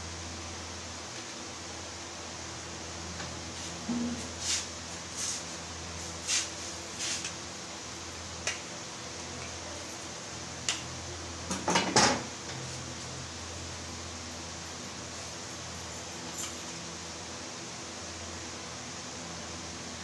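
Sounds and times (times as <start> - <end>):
steady low hum: 0.0 - 11.6.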